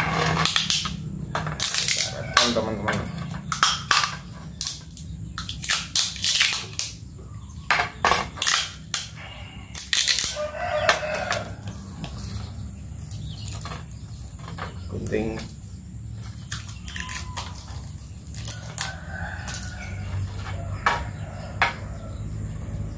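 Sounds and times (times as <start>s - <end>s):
packing tape ripping off roll: 0.0s - 1.0s, 3.5s - 7.0s, 8.3s - 10.4s.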